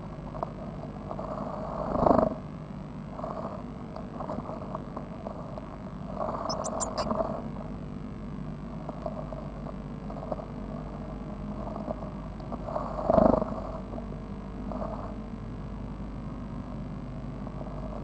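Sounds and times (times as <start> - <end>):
high chick cheeps: 6.5 - 7.1
chicks scratching in nest: 6.5 - 7.2.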